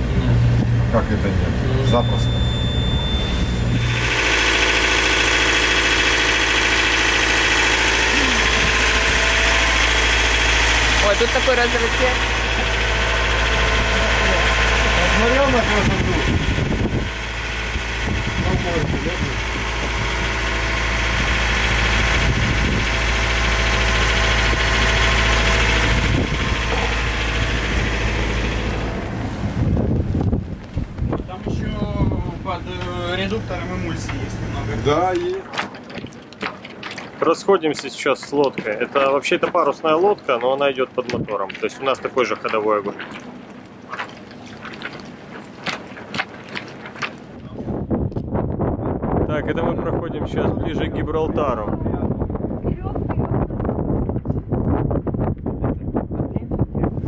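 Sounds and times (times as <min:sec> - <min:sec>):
diesel engine running: 0:00.0 - 0:36.1.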